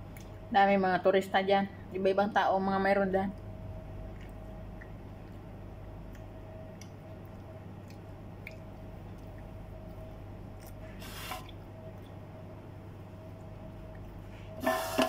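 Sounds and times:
steady low hum: 0.0s - 15.0s
person chewing food: 4.0s - 12.3s
wet mouth clicks and smacks: 4.1s - 5.4s, 6.0s - 9.5s
brief hiss: 14.6s - 15.0s.

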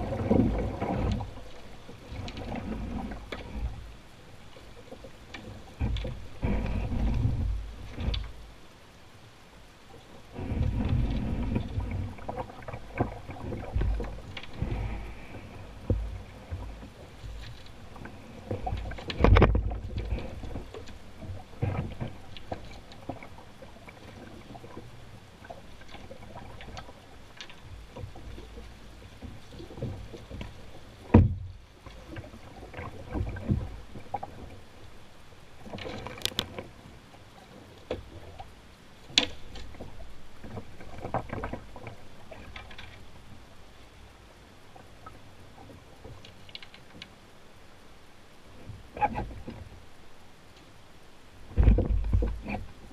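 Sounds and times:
canoe scraping riverbed: 0.0s - 8.6s, 10.1s - 44.0s
rushing water: 0.0s - 52.9s.

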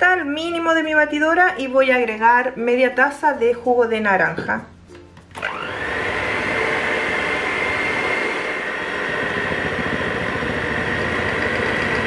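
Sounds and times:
electric hand mixer whine: 5.3s - 12.0s.

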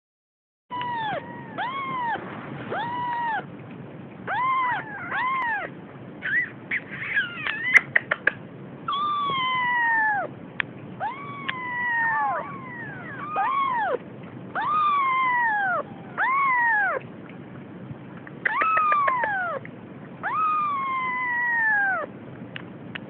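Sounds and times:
kitten chirps: 0.7s - 3.5s, 4.3s - 10.3s, 11.0s - 14.0s, 14.6s - 17.1s, 18.4s - 19.6s, 20.2s - 22.1s
kitten mewing: 0.7s - 3.5s, 4.3s - 8.3s, 8.9s - 10.3s, 11.0s - 14.0s, 14.6s - 17.1s, 18.4s - 19.6s, 20.2s - 22.1s.

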